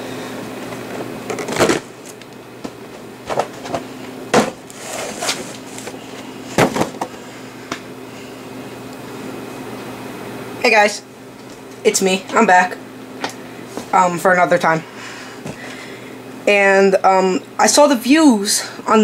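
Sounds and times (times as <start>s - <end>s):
steady background hum: 0.0s - 19.0s
cardboard boxes knocking and rustling: 3.2s - 7.1s.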